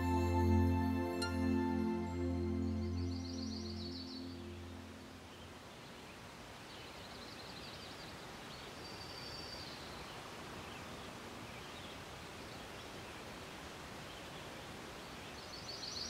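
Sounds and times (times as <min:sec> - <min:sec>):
distant birds chirping: 0:00.0 - 0:06.2
soft outdoor hiss: 0:00.0 - 0:16.0.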